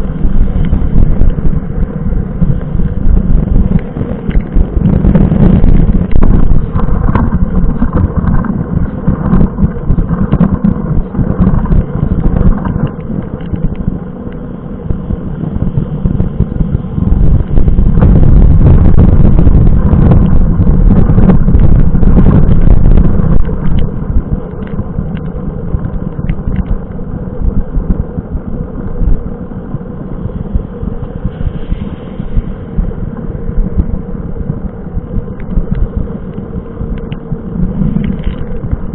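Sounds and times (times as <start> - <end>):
wind buffeting microphone: 0.0 - 38.9
raindrops tapping on camera: 0.2 - 28.1, 33.1 - 38.9.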